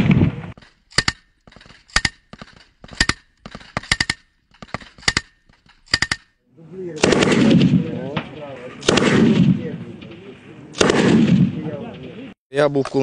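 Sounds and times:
machine gun firing bursts: 7.0 - 7.8, 8.8 - 9.6, 10.8 - 11.5.

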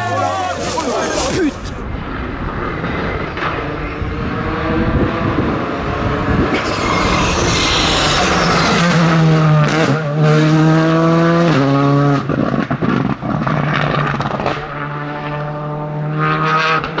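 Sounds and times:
rally car engine revving: 0.0 - 17.0.

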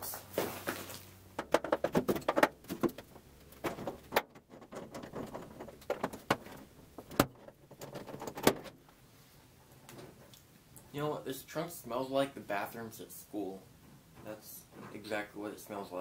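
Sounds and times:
hand tools clicking and clanking: 0.7 - 8.8.

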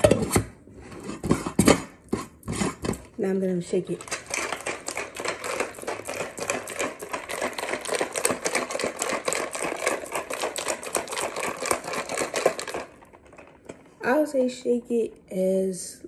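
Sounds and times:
ice rattling in cocktail shaker: 3.9 - 13.6.

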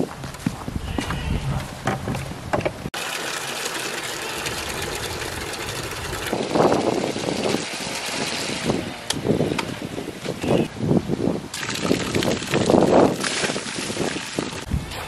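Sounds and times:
water running into plastic bucket: 3.0 - 8.6, 11.5 - 14.7.

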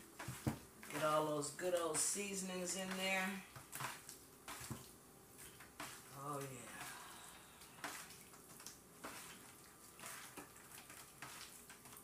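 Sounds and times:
wet squishes of raw chicken: 3.6 - 12.0.

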